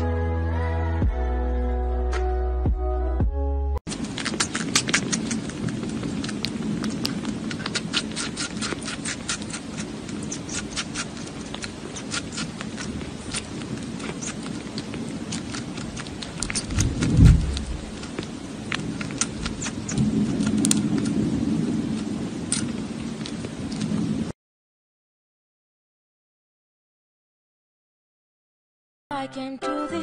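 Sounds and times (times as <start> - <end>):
kitten suckling clicks: 3.9 - 21.2
brief low rumble: 16.6 - 17.9.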